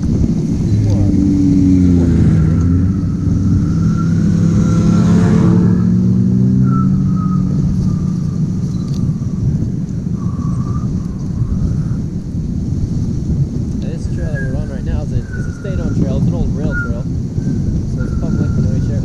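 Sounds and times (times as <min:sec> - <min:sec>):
vehicle engine passing by: 0:00.0 - 0:11.9.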